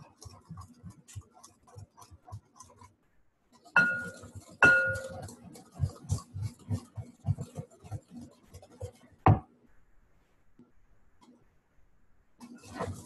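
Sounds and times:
knocking of mixing: 3.6 - 9.6
spoon clinking on mixing bowl: 3.8 - 5.2.

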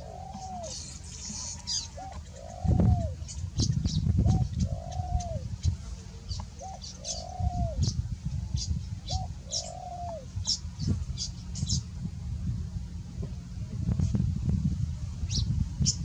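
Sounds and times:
dove cooing: 0.0 - 8.0, 8.6 - 11.3
small birds chirping: 0.0 - 12.0, 15.2 - 16.0.

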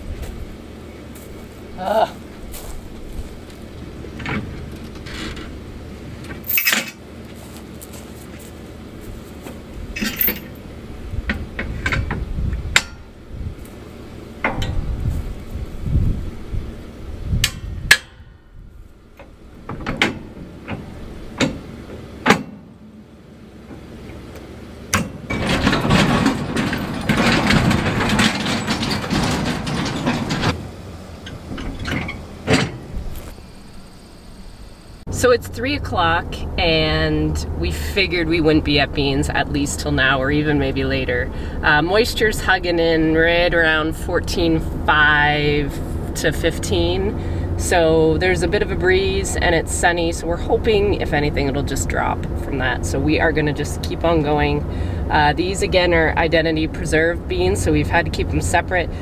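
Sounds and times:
safety chains clinking: 6.4 - 7.0, 10.0 - 10.6
sharp metal knocks: 11.3 - 13.2, 14.4 - 15.2, 17.4 - 18.4, 19.2 - 22.8, 24.9 - 33.0.

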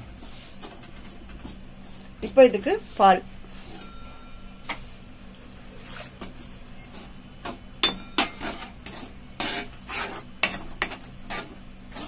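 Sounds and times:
metal spoon scraping steel pan: 7.9 - 12.0.

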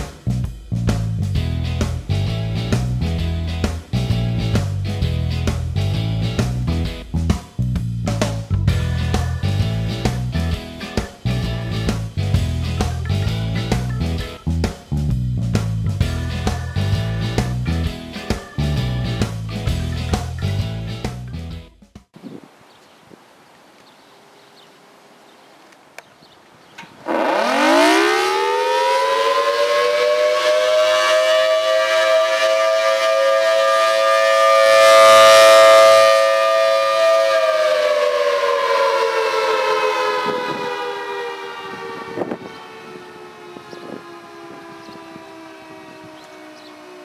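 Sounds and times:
two-toned warning siren wail: 16.2 - 19.3, 27.0 - 47.0.

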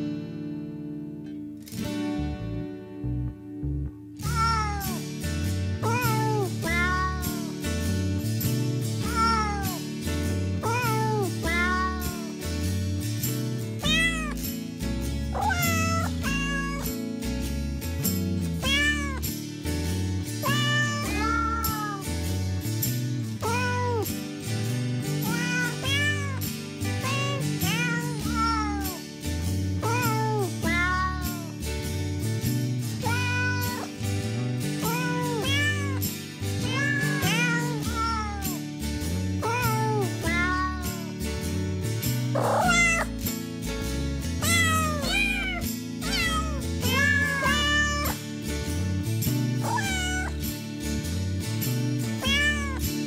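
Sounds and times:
cat meowing: 4.2 - 5.0, 5.8 - 7.5, 9.0 - 9.8, 10.6 - 12.3, 13.8 - 14.4, 15.4 - 17.0, 18.6 - 19.2, 20.4 - 22.1, 23.4 - 24.1, 25.2 - 26.4, 27.0 - 29.0, 29.8 - 31.5, 33.0 - 33.9, 34.8 - 36.0, 36.6 - 38.6, 39.4 - 41.1, 42.4 - 43.1, 44.4 - 48.2, 49.6 - 50.4, 52.2 - 52.8.

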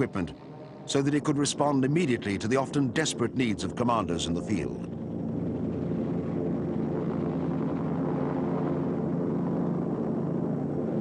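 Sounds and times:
helicopter hovering: 0.0 - 11.0.

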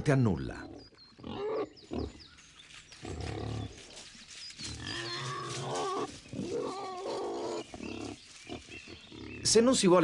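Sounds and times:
wild boar grunting: 4.8 - 9.6.

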